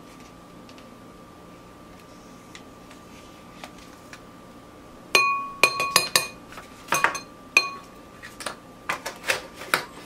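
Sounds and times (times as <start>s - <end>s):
metal spoon clinking on glass bowl: 5.2s - 7.9s.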